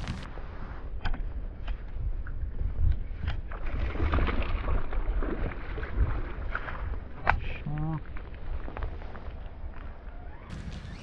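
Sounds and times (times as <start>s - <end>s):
steady low rumble: 0.0s - 4.0s.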